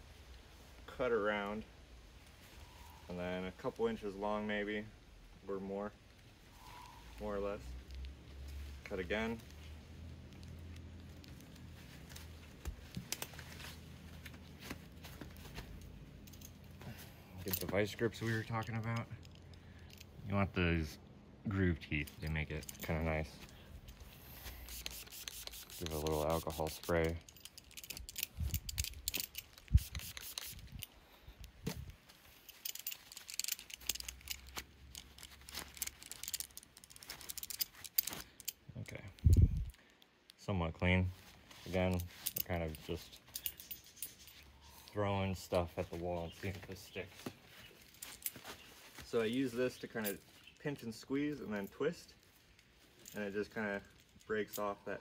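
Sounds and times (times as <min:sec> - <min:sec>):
spray bottle squirting: 0:24.5 - 0:27.0, 0:29.6 - 0:30.7
metal tool clicks: 0:24.7 - 0:30.9, 0:32.5 - 0:38.6.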